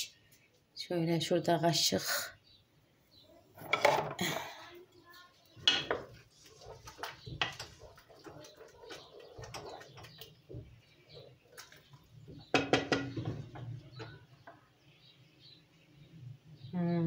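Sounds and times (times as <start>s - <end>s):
wooden spoon scraping a pot: 3.5s - 4.6s, 5.6s - 14.6s.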